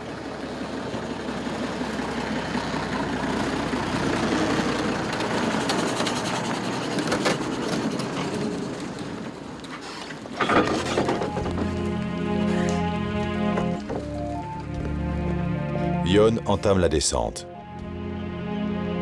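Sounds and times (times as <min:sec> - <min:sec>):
truck knocking and rattling: 0:00.0 - 0:15.0
tyres on dirt and gravel: 0:00.0 - 0:17.8
truck engine running: 0:00.0 - 0:18.3.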